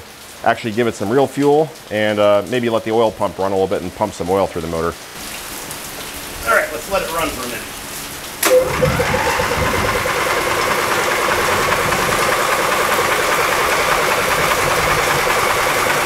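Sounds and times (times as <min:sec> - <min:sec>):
engine cranking with pulsing whine: 0:08.4 - 0:16.0.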